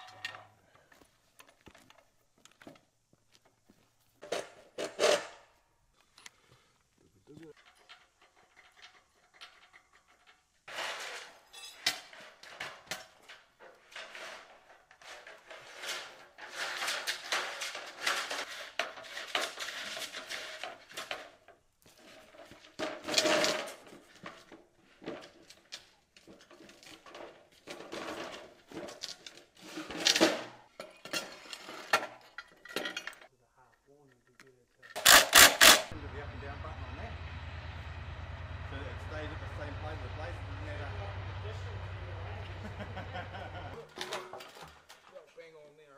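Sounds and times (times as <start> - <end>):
metal parts clinking and rattling: 7.4 - 21.4, 25.2 - 33.3, 34.8 - 36.0.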